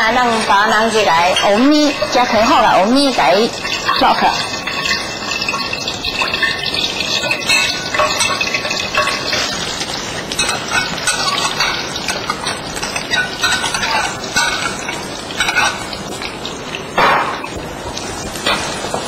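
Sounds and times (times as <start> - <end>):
spatula scraping pan: 0.0 - 16.2.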